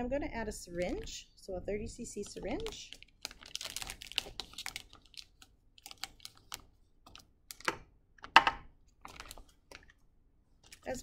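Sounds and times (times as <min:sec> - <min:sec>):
plastic and paper wrapper crackling: 0:00.6 - 0:01.2, 0:02.2 - 0:07.8, 0:09.0 - 0:10.0, 0:10.6 - 0:11.0
wrapper seam ripping: 0:02.6 - 0:06.6.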